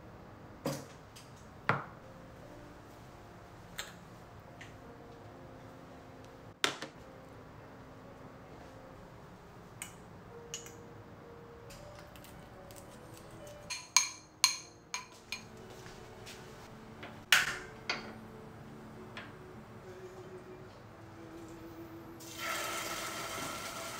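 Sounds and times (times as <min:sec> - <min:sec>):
soft background music: 0:00.3 - 0:23.9
metal spoon clinking on glass bowl: 0:13.7 - 0:15.5.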